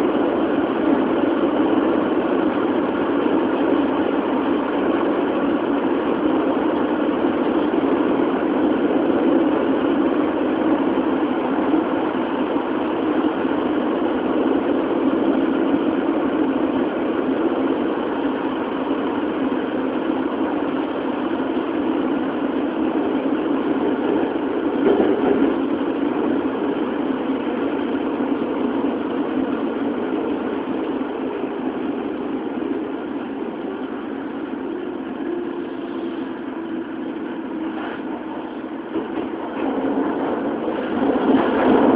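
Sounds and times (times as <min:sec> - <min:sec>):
subway car wheels rumbling on rail: 0:00.0 - 0:41.9.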